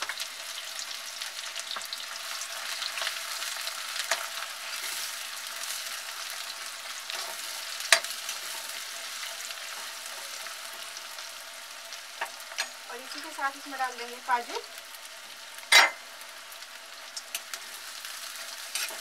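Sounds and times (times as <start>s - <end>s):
onions sizzling in hot fat: 0.0s - 19.0s
metal spatula scraping pan: 18.7s - 19.0s.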